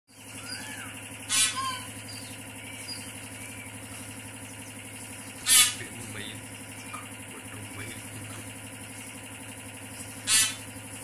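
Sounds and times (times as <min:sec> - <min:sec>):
harsh bird calls: 0:00.1 - 0:07.2, 0:09.9 - 0:11.0
small birds chirping: 0:00.1 - 0:11.0
steady low hum: 0:00.1 - 0:11.0.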